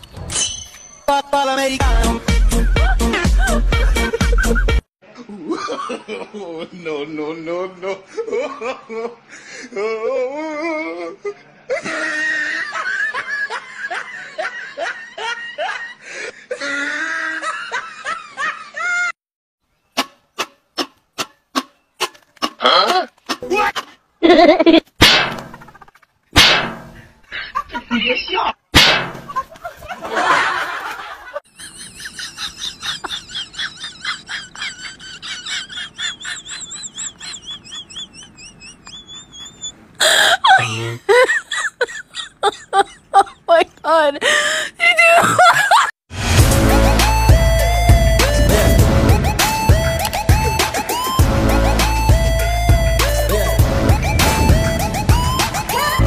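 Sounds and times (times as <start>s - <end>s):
person laughing: 2.4s - 6.6s, 7.8s - 19.1s, 22.6s - 24.9s, 29.3s - 43.7s, 45.0s - 45.9s, 48.2s - 51.1s, 55.3s - 56.0s
high bird-like chirps: 37.2s - 39.8s.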